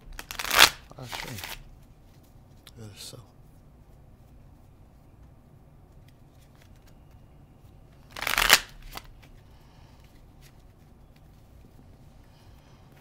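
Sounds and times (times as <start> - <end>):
cards being shuffled: 0.2 - 2.3, 5.8 - 11.9.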